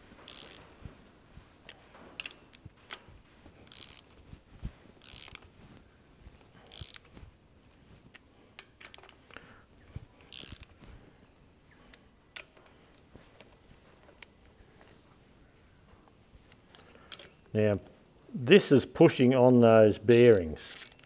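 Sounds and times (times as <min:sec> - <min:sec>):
ratchet wrench clicking: 0:00.2 - 0:00.8, 0:03.6 - 0:04.2, 0:05.0 - 0:05.4, 0:06.7 - 0:07.1, 0:10.3 - 0:10.7, 0:20.3 - 0:21.0.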